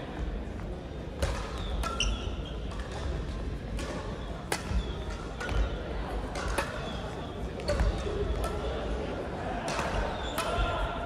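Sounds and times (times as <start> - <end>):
rackets hitting shuttlecocks: 1.2 - 11.0
shoes squeaking on floor: 1.6 - 2.7.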